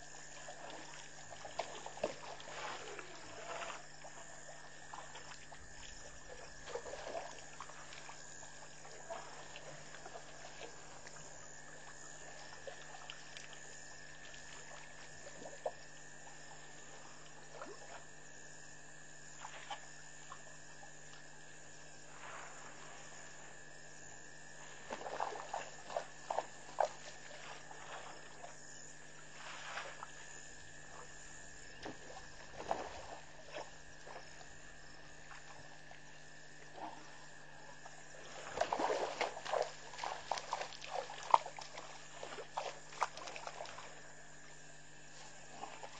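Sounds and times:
water splashing from elephant trunks: 0:00.0 - 0:11.4, 0:24.7 - 0:28.6, 0:29.2 - 0:31.1, 0:31.7 - 0:34.5, 0:36.7 - 0:44.1, 0:45.2 - 0:45.9.

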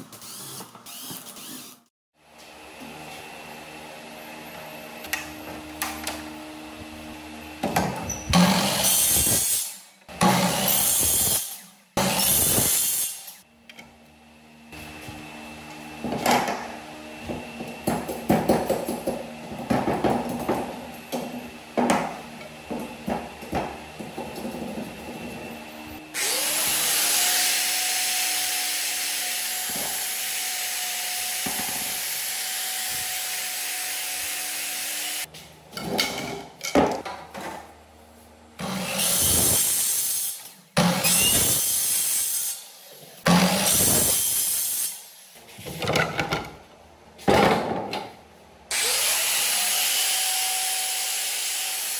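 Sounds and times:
angle grinder whining: 0:00.0 - 0:35.3, 0:48.7 - 0:51.9.

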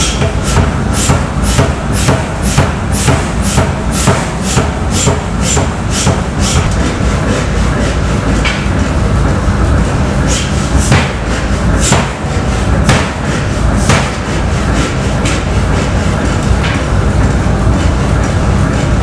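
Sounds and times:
low machine rumble: 0:00.0 - 0:19.0.

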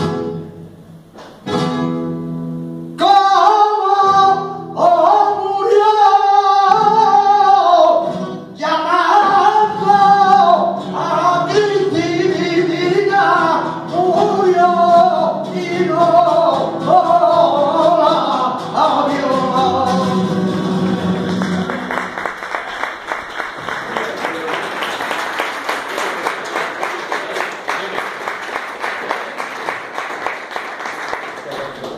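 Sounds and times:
man singing flamenco: 0:03.0 - 0:22.0
audience applause: 0:20.7 - 0:31.9.

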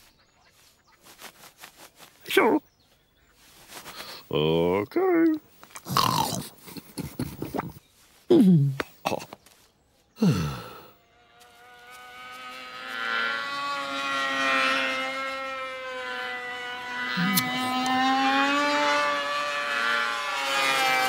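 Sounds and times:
vocal grunt: 0:05.9 - 0:06.6, 0:10.2 - 0:10.9
propeller plane engine buzzing: 0:10.5 - 0:21.0.

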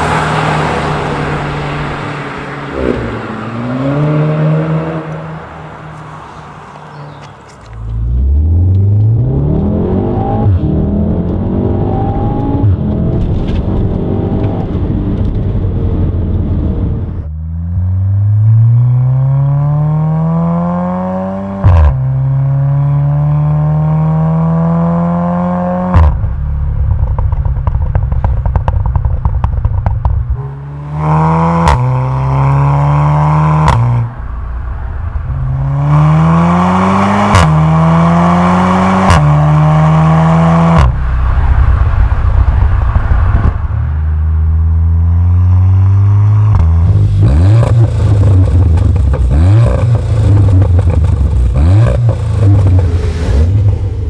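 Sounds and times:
car engine accelerating: 0:00.0 - 0:54.0
exhaust crackling: 0:25.5 - 0:54.0
exhaust crack on upshift: 0:25.8 - 0:34.4, 0:46.0 - 0:54.0.

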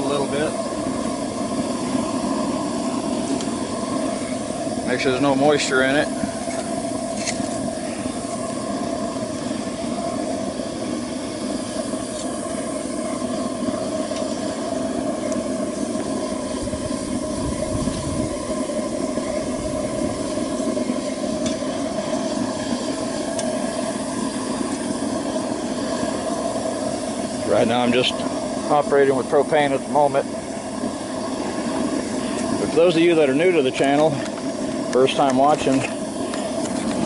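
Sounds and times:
burner flame rushing: 0:00.0 - 0:37.0.

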